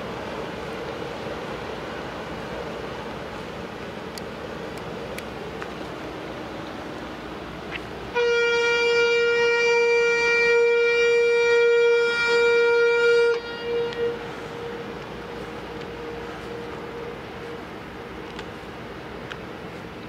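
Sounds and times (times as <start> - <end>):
ship's whistle blast: 8.1 - 17.1.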